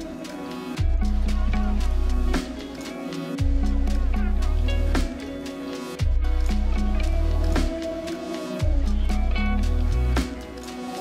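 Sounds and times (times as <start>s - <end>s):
background music with heavy bass: 0.0s - 11.0s.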